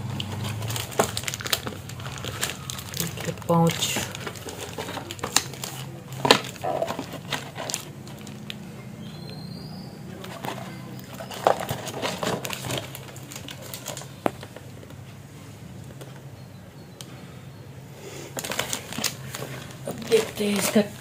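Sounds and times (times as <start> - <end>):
plastic wrapping crinkling: 0.1 - 8.7, 10.2 - 14.9, 18.3 - 21.0
cardboard box handled: 0.2 - 8.4, 10.2 - 14.5, 18.4 - 21.0.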